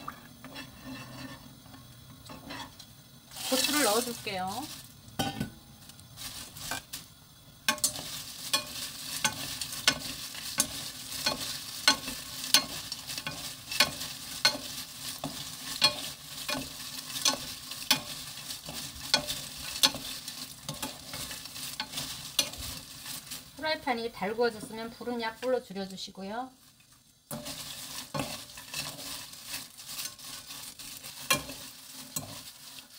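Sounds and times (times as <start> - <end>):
wooden spatula scraping pan: 0.0 - 4.6, 7.7 - 23.7, 27.3 - 32.9
food sizzling in oil: 0.0 - 32.9.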